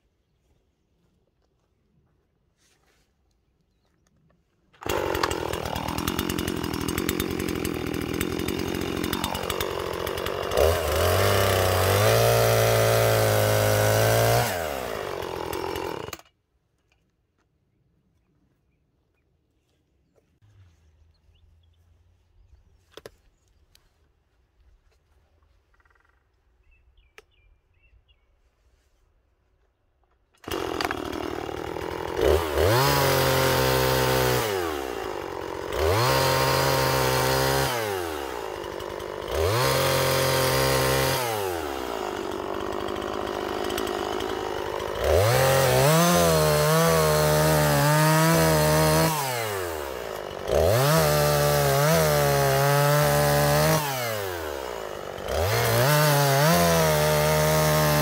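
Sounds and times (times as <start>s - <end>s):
chainsaw revving and cutting log: 4.8s - 16.3s, 30.4s - 58.0s.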